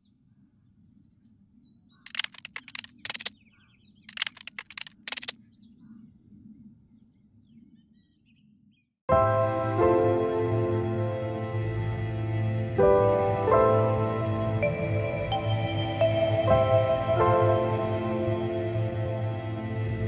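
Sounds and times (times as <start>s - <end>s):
keyboard typing clicks: 2.1s - 3.3s, 4.1s - 5.4s
piano music: 9.1s - 20.0s.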